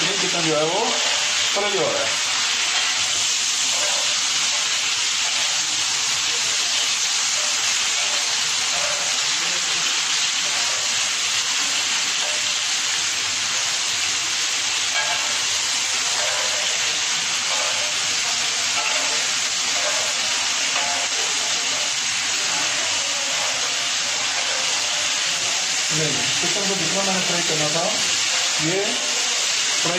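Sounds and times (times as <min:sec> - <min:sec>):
chicken sizzling in hot oil: 0:00.0 - 0:29.9.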